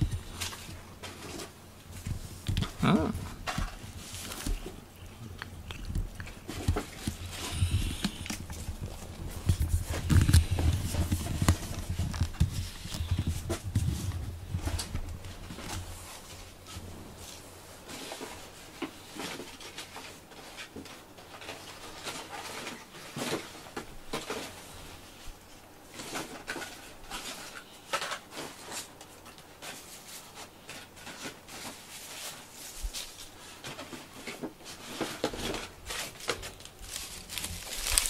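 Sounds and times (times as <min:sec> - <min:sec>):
cat paws clicking and scratching: 0:03.4 - 0:17.4, 0:26.0 - 0:38.0.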